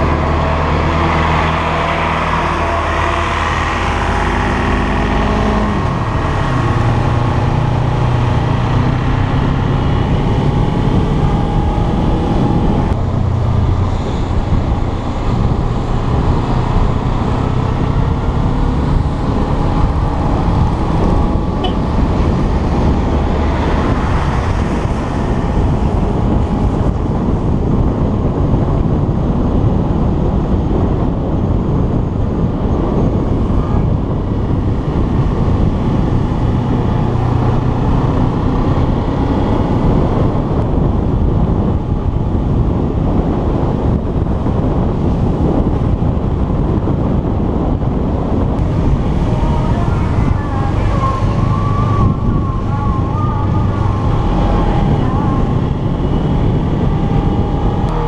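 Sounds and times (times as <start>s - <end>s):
wind rushing on microphone: 0.0s - 58.0s
motorcycle engine running: 5.8s - 30.2s.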